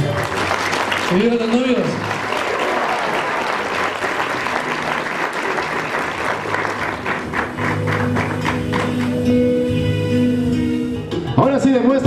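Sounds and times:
music: 0.0s - 2.2s, 3.9s - 12.0s
people clapping: 0.0s - 9.4s.

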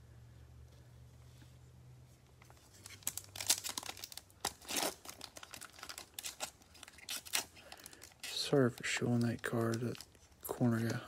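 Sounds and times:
foil wrapper tearing and crinkling: 2.7s - 11.0s.

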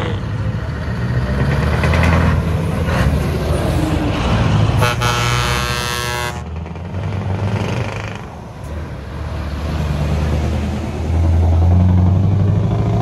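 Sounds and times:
air horn blast: 4.8s - 6.4s.

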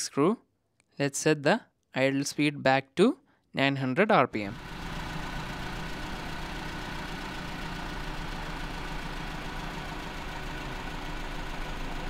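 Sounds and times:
car engine idling: 4.5s - 12.0s.

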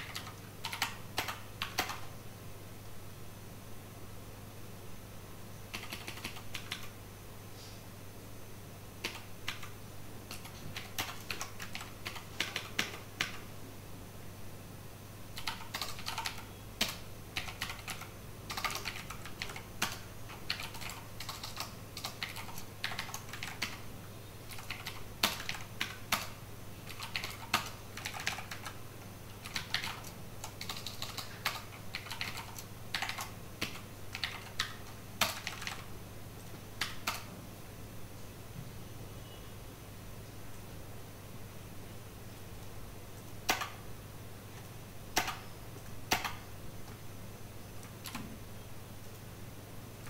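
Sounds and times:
keyboard typing: 0.0s - 2.1s, 5.7s - 7.0s, 9.0s - 13.4s, 15.4s - 23.9s, 24.5s - 37.3s, 43.2s - 43.8s, 44.5s - 47.0s, 47.8s - 48.4s.

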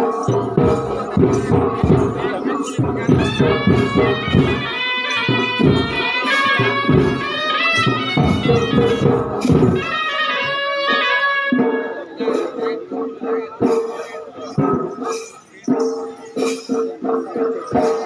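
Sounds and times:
reed pipe melody: 0.0s - 13.0s
drum beat: 0.0s - 18.0s.

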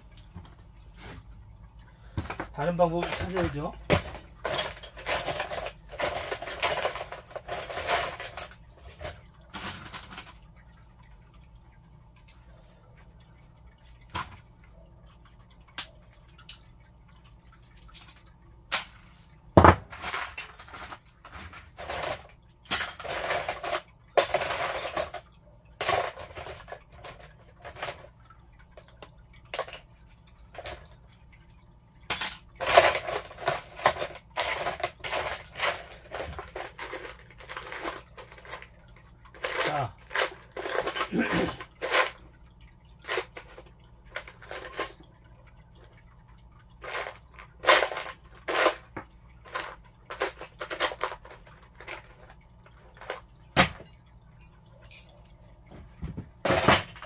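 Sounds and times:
metal tools clinking: 2.3s - 10.4s, 19.6s - 28.1s, 32.1s - 42.2s, 43.0s - 45.1s, 46.8s - 52.3s, 52.9s - 57.0s.

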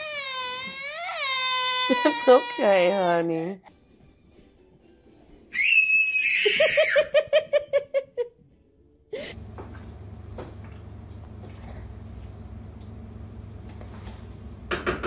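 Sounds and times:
child squealing: 0.0s - 2.7s, 5.5s - 7.0s
child giggling: 6.4s - 8.3s
low room hum: 6.8s - 15.0s.

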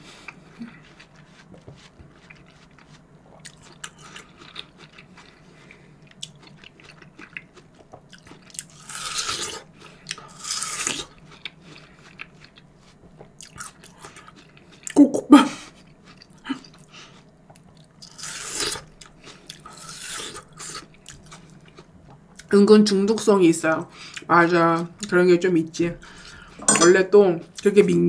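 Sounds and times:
person chewing: 0.0s - 15.0s, 15.6s - 22.5s.

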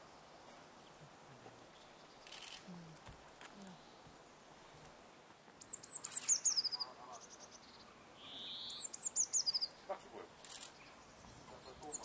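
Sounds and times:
songbird singing falling notes: 5.6s - 9.8s
faint bird calls: 5.6s - 12.0s.

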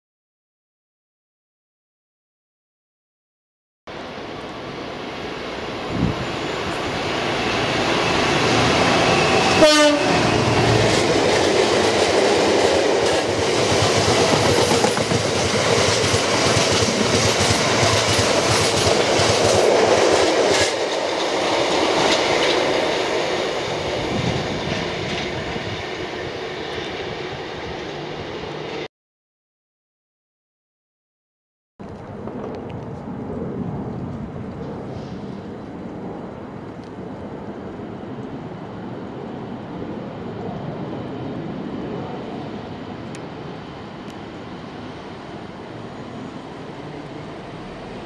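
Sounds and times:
diesel locomotive passing: 3.9s - 28.9s, 31.9s - 48.0s
train horn tone: 9.4s - 10.5s
wagons running on rails: 10.6s - 23.4s.

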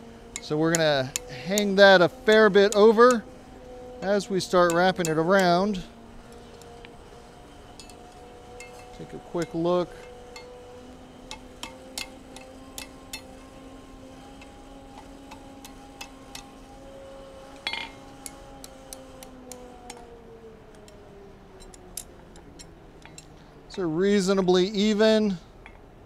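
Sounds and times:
steady hum: 0.0s - 26.0s
hammer tapping hot steel: 0.3s - 3.2s, 4.0s - 6.9s, 7.7s - 13.6s, 14.3s - 16.8s, 17.5s - 20.1s
ringing hammer strike: 17.6s - 18.4s.

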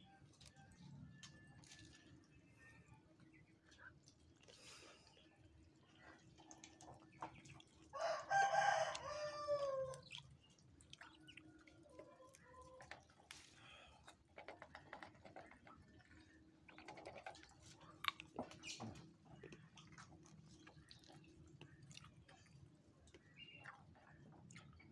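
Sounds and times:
rooster crowing: 8.0s - 10.0s.

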